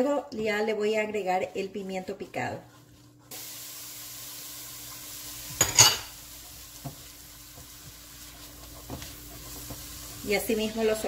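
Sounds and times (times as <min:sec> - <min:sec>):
spatula stirring vegetables: 0:00.0 - 0:11.0
vegetables sizzling in a pot: 0:03.3 - 0:11.0
spatula scraping pot: 0:07.6 - 0:11.0.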